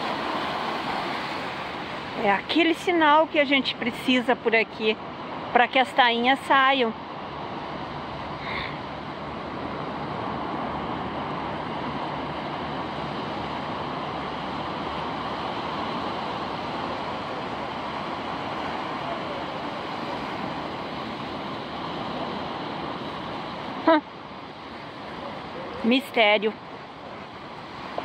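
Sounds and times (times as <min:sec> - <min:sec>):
ocean surf breaking: 0:00.0 - 0:28.0
wind: 0:00.0 - 0:28.0.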